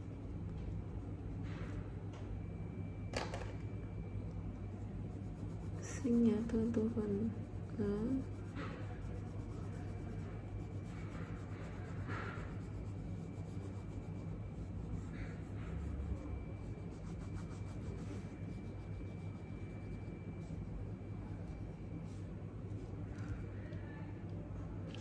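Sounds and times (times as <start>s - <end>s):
steady low hum: 0.0s - 25.0s
pen scratching on paper: 4.7s - 20.7s.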